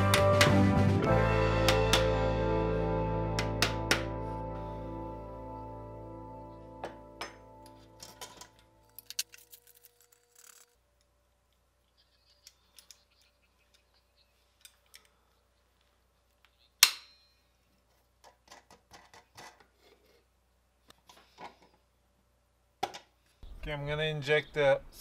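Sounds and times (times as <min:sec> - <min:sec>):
loud sharp snap: 0:01.6 - 0:02.2.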